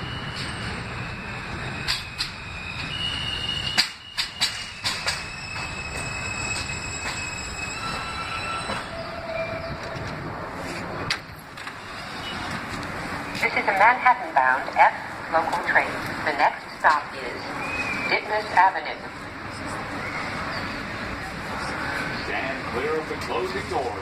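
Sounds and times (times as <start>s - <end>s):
wheel and brake squeals: 0.0s - 10.0s, 11.7s - 12.7s, 19.9s - 21.1s
train doors opening: 0.0s - 13.9s
subway train rumble: 0.0s - 24.0s
wheels clacking over rail joints: 3.6s - 7.3s.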